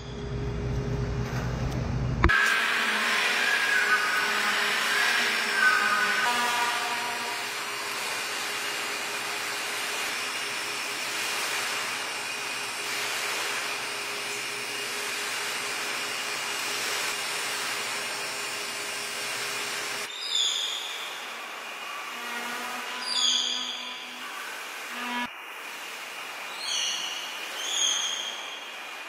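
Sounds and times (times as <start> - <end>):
fan motor whirring: 0.0 - 20.1.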